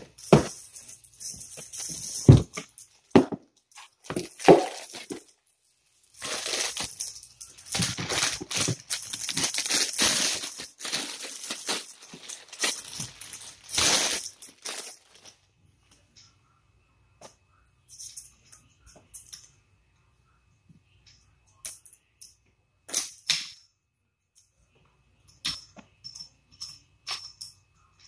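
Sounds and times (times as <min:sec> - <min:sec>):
plastic bag crinkling: 0:03.9 - 0:05.4, 0:06.0 - 0:15.4.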